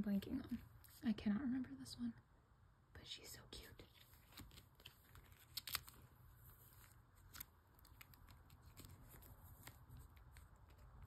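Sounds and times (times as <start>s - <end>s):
plastic sleeves rustling and clicking: 3.9s - 11.0s.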